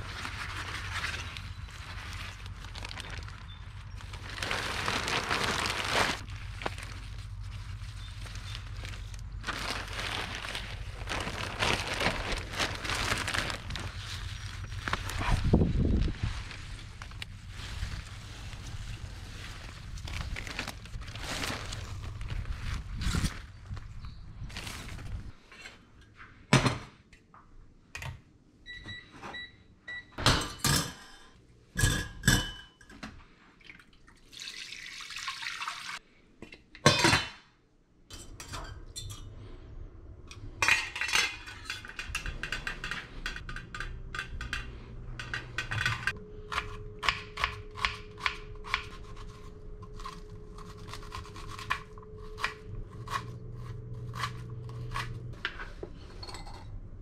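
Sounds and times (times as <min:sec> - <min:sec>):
plastic bag and leaves rustling: 0:00.0 - 0:25.4.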